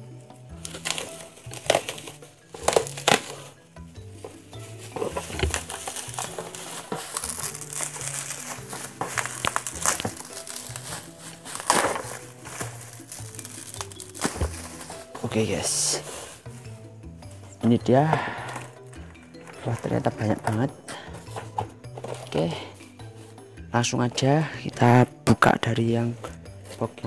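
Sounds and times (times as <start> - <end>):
bubble wrap crinkling: 0.0 - 23.8
soft background music: 0.0 - 27.0.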